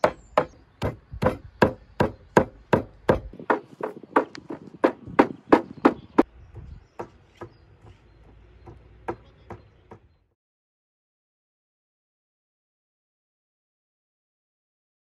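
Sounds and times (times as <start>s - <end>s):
cleaver chopping meat on wood block: 0.0s - 6.0s.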